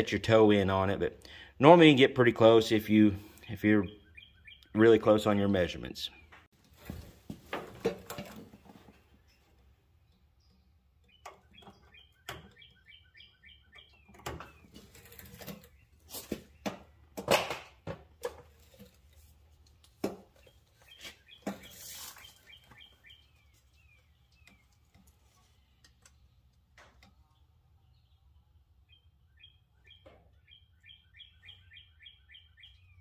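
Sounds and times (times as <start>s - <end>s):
small bird chirping: 3.4s - 4.9s, 9.2s - 16.7s, 20.4s - 26.5s, 27.1s - 33.0s
clicks and knocks of tools: 24.3s - 27.3s.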